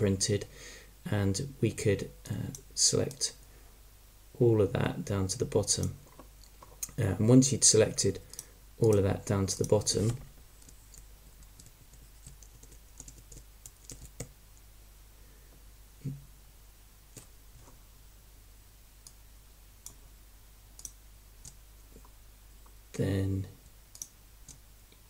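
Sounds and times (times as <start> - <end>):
computer mouse and keyboard clicks: 9.6 - 14.3.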